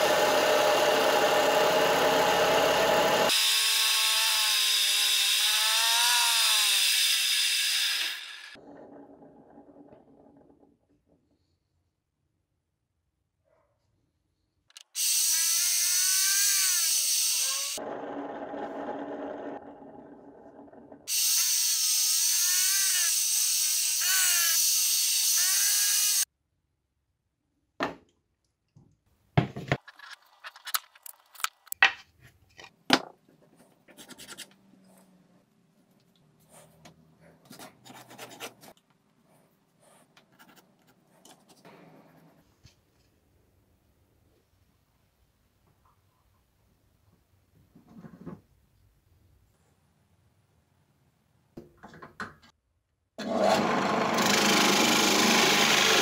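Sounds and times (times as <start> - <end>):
disc sander grinding wood: 0.0 - 8.6, 53.2 - 56.0.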